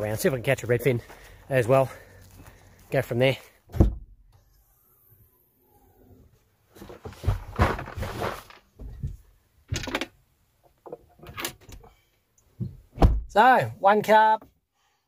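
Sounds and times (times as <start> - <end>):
rustling and knocking of gear: 6.7 - 12.9.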